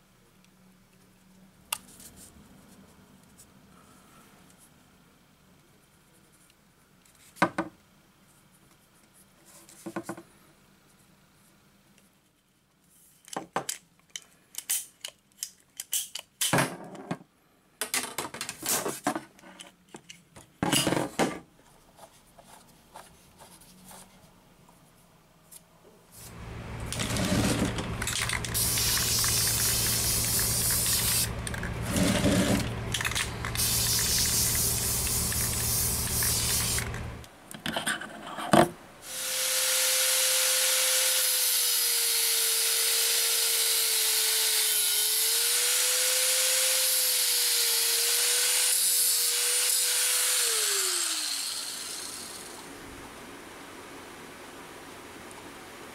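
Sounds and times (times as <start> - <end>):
angle grinder cutting metal: 26.4 - 37.1, 39.1 - 52.7
aerosol spray can hissing: 27.0 - 37.2.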